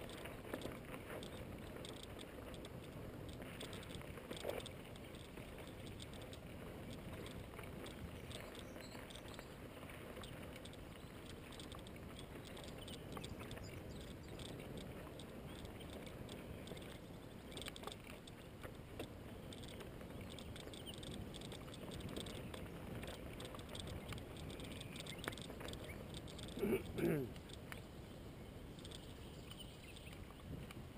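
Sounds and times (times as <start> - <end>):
bike clicks and rattles: 0.0 - 9.5, 10.1 - 27.8, 28.8 - 30.2
wind on microphone: 19.2 - 30.9.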